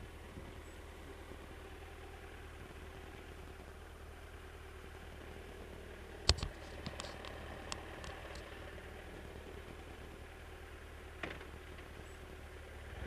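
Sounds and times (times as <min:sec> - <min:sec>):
motorcycle engine drone: 0:00.0 - 0:13.0
gravel ticking against bike: 0:06.2 - 0:08.8.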